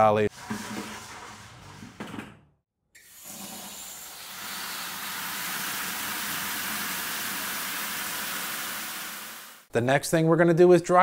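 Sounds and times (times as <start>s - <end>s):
water spraying into plastic bucket: 3.0s - 9.6s.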